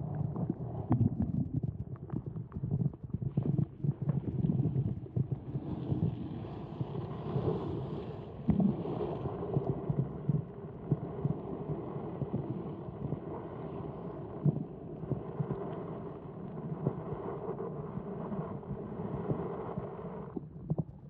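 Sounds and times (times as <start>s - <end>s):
muffled water sloshing underwater: 0.0s - 21.0s.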